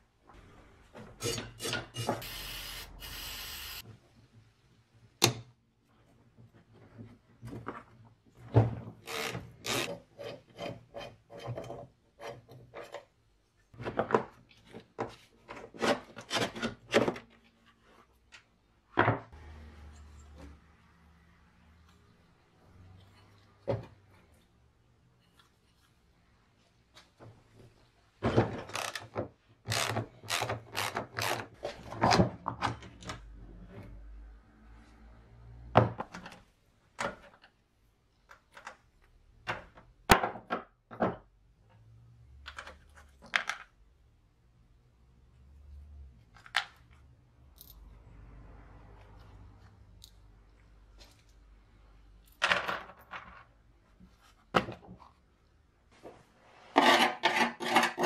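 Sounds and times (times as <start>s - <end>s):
metal parts clicking and knocking: 28.5s - 31.5s.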